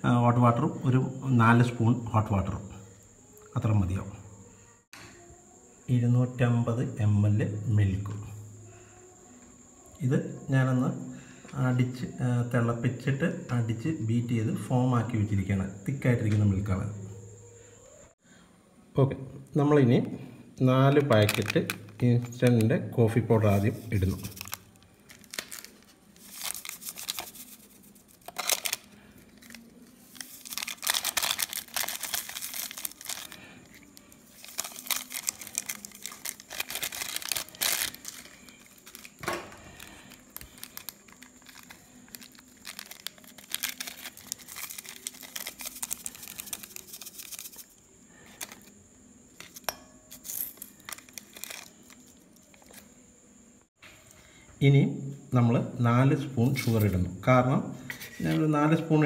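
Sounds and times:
plastic sachets crinkling and tearing: 0:21.0 - 0:22.6, 0:23.4 - 0:48.8, 0:49.4 - 0:52.9.

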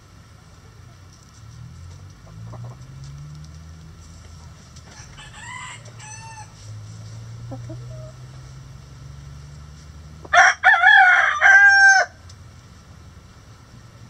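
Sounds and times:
hens clucking softly: 0:02.2 - 0:02.9, 0:07.4 - 0:08.4
rooster crowing: 0:04.9 - 0:06.6, 0:10.2 - 0:12.2.

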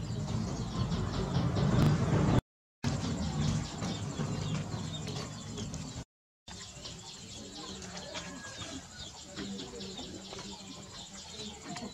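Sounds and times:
low rumble: 0:00.0 - 0:06.0
birds chirping and cooing: 0:00.0 - 0:11.9.

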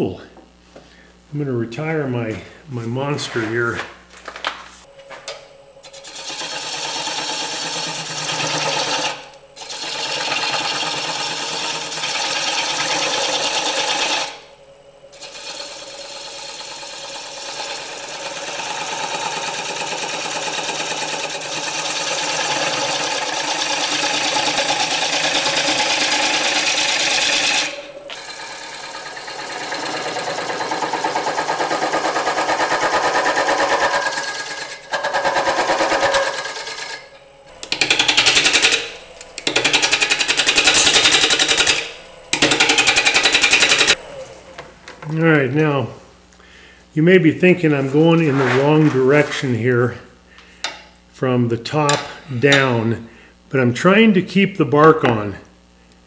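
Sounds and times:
gouge cutting wood on lathe: 0:05.8 - 0:14.5, 0:15.1 - 0:44.6.

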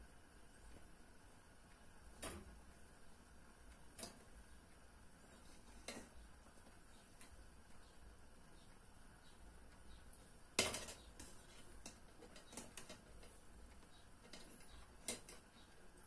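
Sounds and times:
utensils tapping cooking pot: 0:05.4 - 0:07.4, 0:10.6 - 0:15.7.

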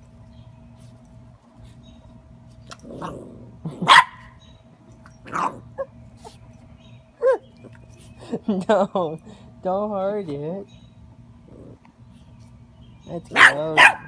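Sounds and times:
puppy growling: 0:02.7 - 0:03.9, 0:11.4 - 0:11.9
puppy barking: 0:03.8 - 0:04.4, 0:05.3 - 0:05.9, 0:13.3 - 0:14.0.

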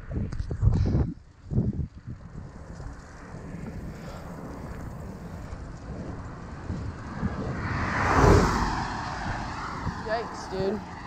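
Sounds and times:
wind buffeting microphone: 0:00.0 - 0:11.0
vehicle passing close by: 0:02.2 - 0:11.0.

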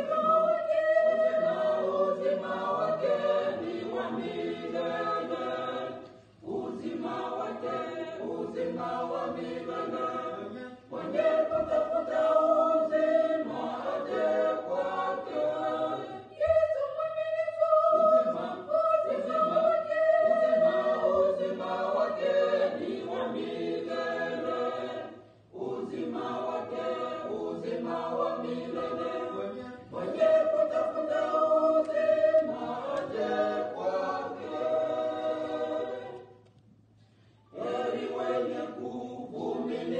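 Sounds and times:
choir singing gospel song: 0:00.0 - 0:36.4, 0:37.4 - 0:39.9.

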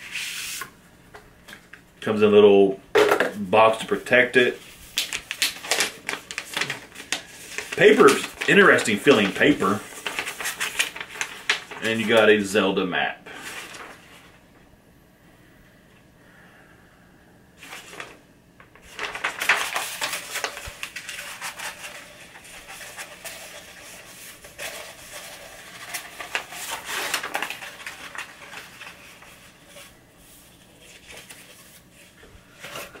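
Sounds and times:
paper rustling and crinkling: 0:04.4 - 0:12.5, 0:13.3 - 0:14.4, 0:17.6 - 0:33.0.

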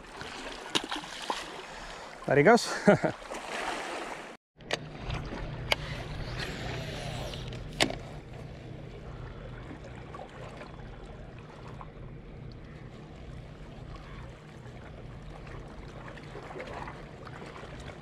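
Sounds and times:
low rumble: 0:04.7 - 0:18.0.

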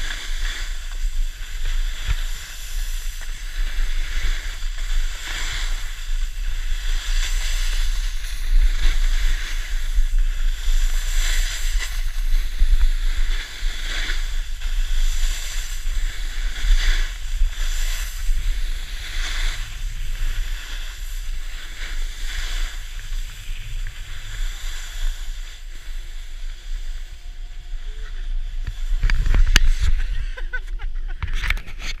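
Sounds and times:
ski edges scraping snow: 0:00.0 - 0:32.0
wind buffeting microphone: 0:28.4 - 0:32.0.

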